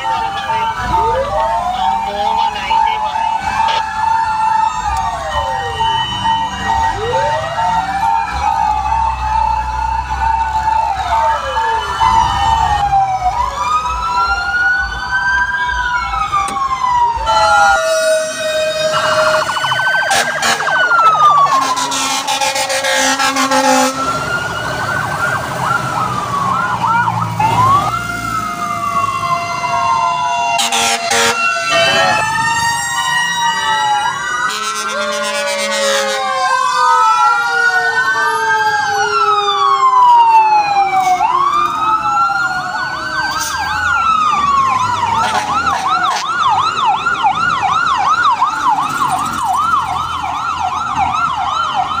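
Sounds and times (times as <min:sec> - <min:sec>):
fire truck sirens wailing: 0:00.0 - 0:52.0
siren fast yelp: 0:00.0 - 0:52.0.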